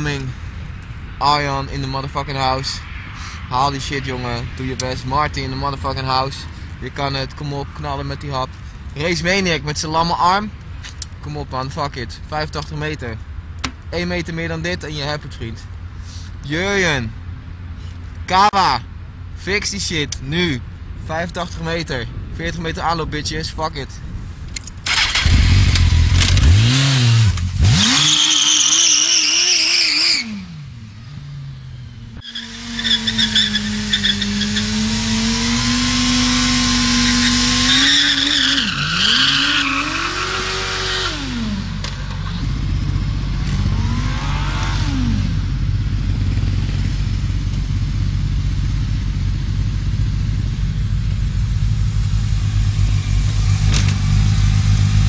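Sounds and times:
motorcycle engine revving: 0:24.9 - 0:55.0
motorcycle engine idling: 0:45.4 - 0:55.0.

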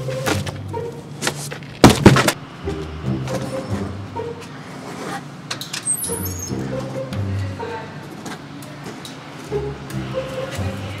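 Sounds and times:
background music with low notes: 0:00.0 - 0:04.7, 0:06.1 - 0:08.2, 0:09.4 - 0:11.0.

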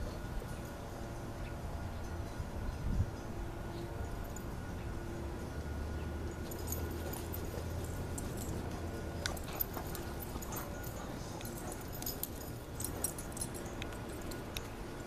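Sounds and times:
dogs play-fighting: 0:06.3 - 0:15.0.

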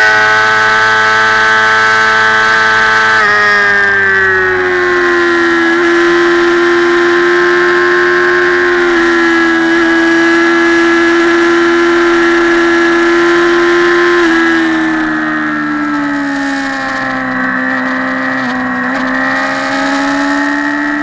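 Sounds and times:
motorcycle engine at high revs: 0:00.0 - 0:21.0.

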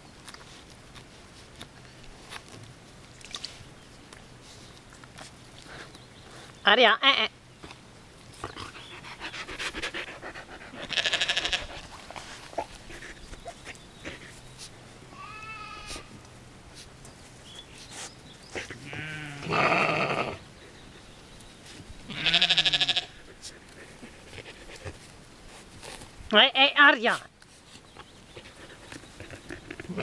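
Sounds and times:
rustling in grass: 0:07.5 - 0:30.0.

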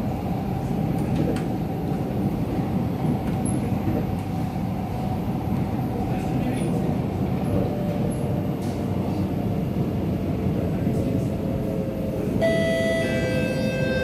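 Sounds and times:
chord of steady tones: 0:12.4 - 0:14.0.

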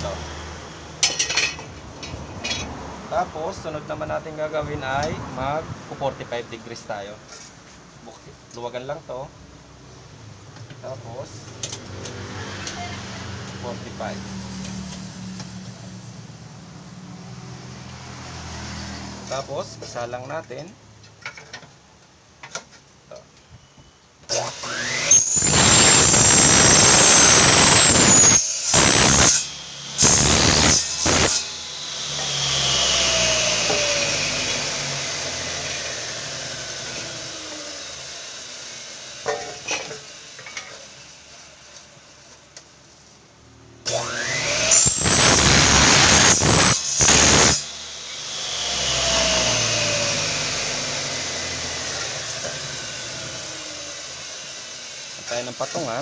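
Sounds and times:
miter saw cutting metal: 0:00.9 - 0:01.8, 0:24.3 - 0:41.8, 0:43.8 - 0:56.0
saw blade coasting down: 0:24.3 - 0:41.3, 0:43.8 - 0:56.0.

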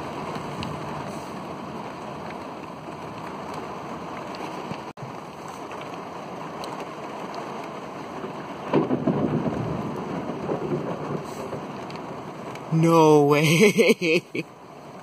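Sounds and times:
steady rain: 0:00.0 - 0:15.0
thunderclap rumbling: 0:08.6 - 0:12.4.

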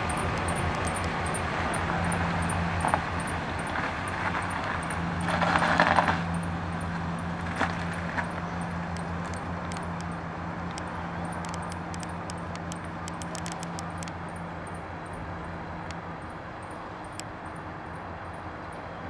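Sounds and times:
sharp clicks: 0:00.0 - 0:01.4, 0:08.9 - 0:14.2
rushing noise: 0:00.0 - 0:07.6
truck engine running: 0:00.0 - 0:19.0.

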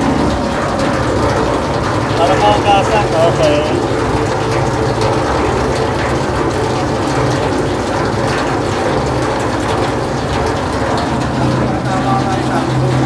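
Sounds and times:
water pump humming: 0:00.0 - 0:13.0
water rushing into tank: 0:00.0 - 0:13.0.

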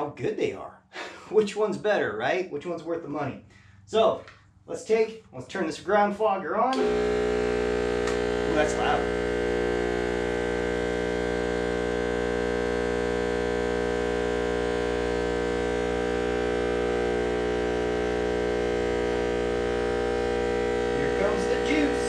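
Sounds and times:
fogger machine droning: 0:06.8 - 0:22.0.

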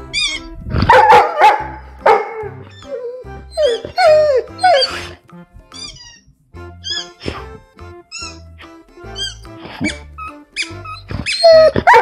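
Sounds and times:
background music: 0:00.0 - 0:12.0
dog barking and yelping: 0:00.2 - 0:05.2, 0:09.2 - 0:12.0.

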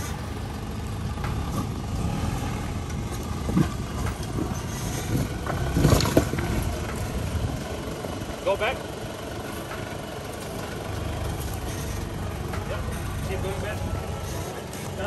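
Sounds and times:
off-road vehicle engine running: 0:00.0 - 0:15.0.

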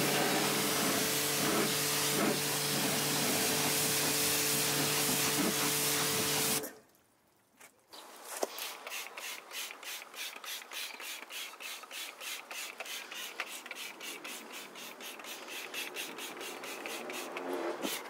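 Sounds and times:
spray bottle squirts: 0:01.4 - 0:06.7, 0:08.4 - 0:18.0.

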